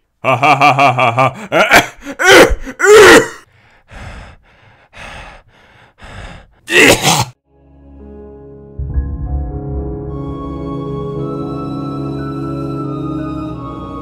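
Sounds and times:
cartoon character gasping and sighing: 1.3s - 7.4s
breathy puffs: 3.4s - 6.7s.

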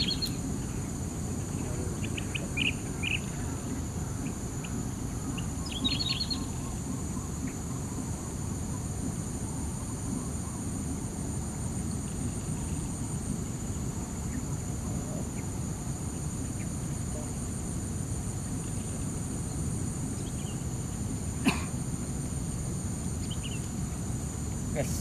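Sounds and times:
bird chirps: 0.0s - 10.8s
insects droning: 0.0s - 25.0s
low background rumble: 0.0s - 25.0s.

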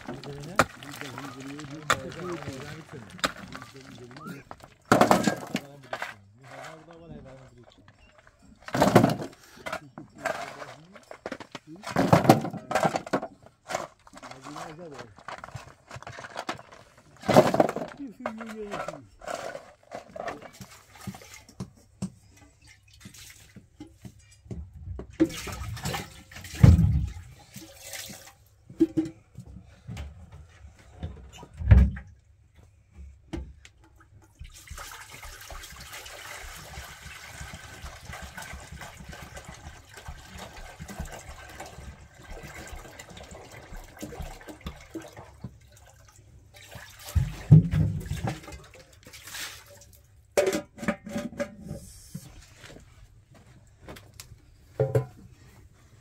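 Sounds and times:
water pouring into metal pot: 0.0s - 4.8s, 34.3s - 50.0s
stones landing in metal wheelbarrow: 0.0s - 6.8s, 8.6s - 16.6s, 17.2s - 20.7s.

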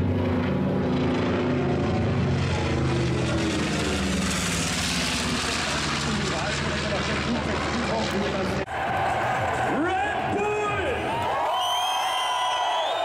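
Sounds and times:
propeller plane droning overhead: 0.0s - 13.0s.

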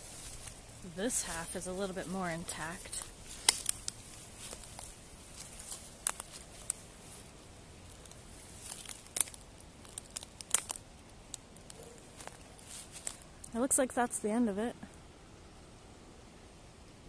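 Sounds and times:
footsteps on dry leaves and twigs: 0.0s - 10.8s, 11.7s - 13.3s.

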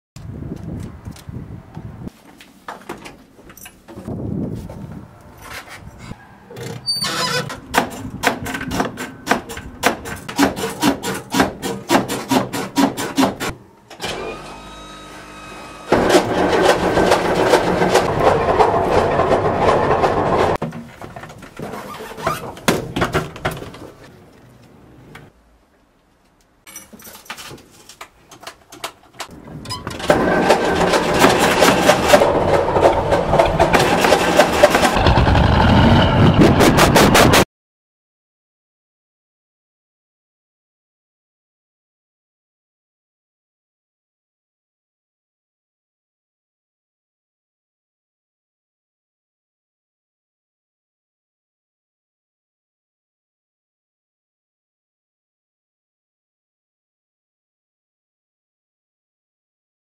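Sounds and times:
diesel engine cranking: 14.0s - 20.6s, 29.3s - 37.4s.

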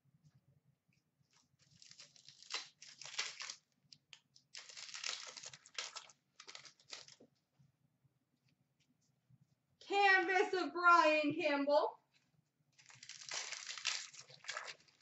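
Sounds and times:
card pack wrapper crinkling and tearing: 1.6s - 7.2s, 12.8s - 15.0s.

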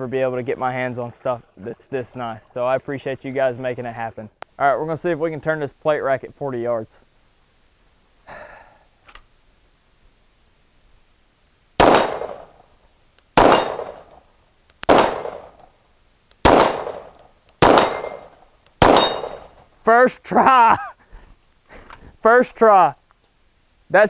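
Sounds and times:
bullets hitting steel plates: 11.8s - 12.5s, 13.4s - 14.1s, 14.9s - 15.6s, 16.4s - 19.6s
pistol shots: 11.8s - 12.6s, 13.4s - 14.2s, 14.8s - 15.6s, 16.4s - 19.6s
person exclaiming excitedly: 20.0s - 21.0s.

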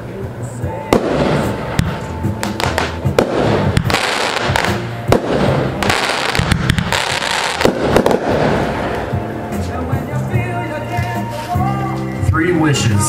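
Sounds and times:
continuous noisy rush: 0.0s - 7.0s
fireworks bangs: 0.9s - 9.2s.

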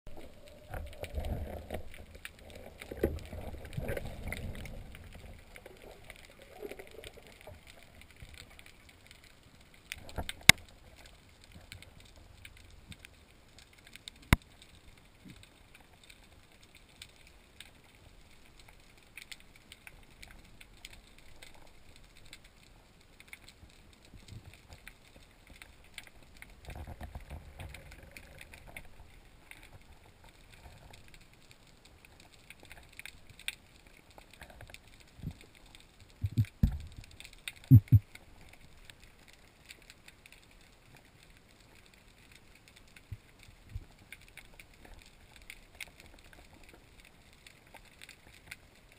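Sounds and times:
underwater rumbling: 0.1s - 16.0s, 23.6s - 48.6s
faint crackling: 0.1s - 48.9s
sharp clicks: 37.5s - 38.2s.

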